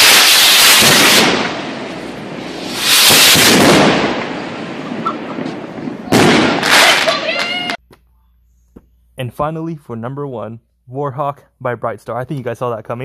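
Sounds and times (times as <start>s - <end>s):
firework rockets bursting: 0.0s - 7.8s.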